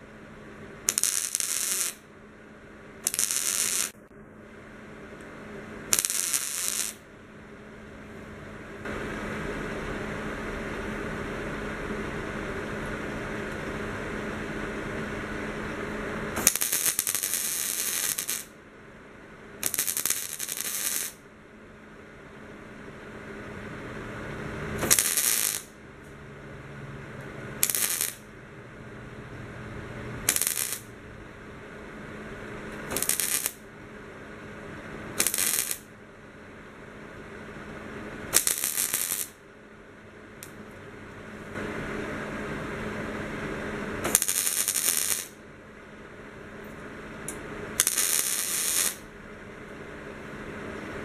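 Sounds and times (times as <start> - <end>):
steady hum: 0.0 - 51.0
welder arc crackling: 0.8 - 2.1, 3.0 - 4.1, 5.2 - 7.1, 15.4 - 18.6, 19.6 - 21.2, 23.4 - 28.4, 29.1 - 31.2, 32.2 - 33.7, 35.0 - 35.9, 38.2 - 39.4, 43.8 - 45.4, 47.2 - 49.1.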